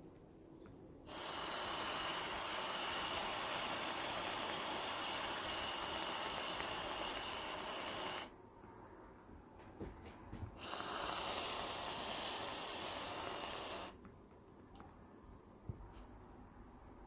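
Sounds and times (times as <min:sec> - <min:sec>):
aerosol can spraying hiss: 0:01.1 - 0:08.3, 0:10.6 - 0:14.0.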